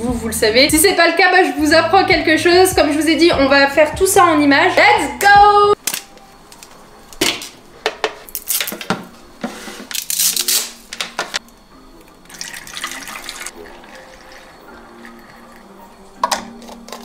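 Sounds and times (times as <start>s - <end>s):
liquid trickling through funnel: 12.1s - 16.2s.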